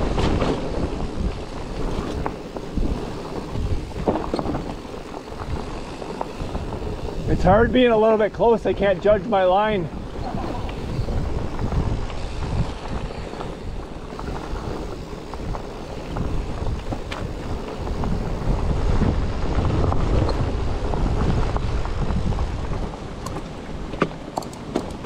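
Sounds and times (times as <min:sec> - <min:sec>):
bike knocks and rattles: 0:00.0 - 0:25.0
wind buffeting microphone: 0:00.0 - 0:25.0.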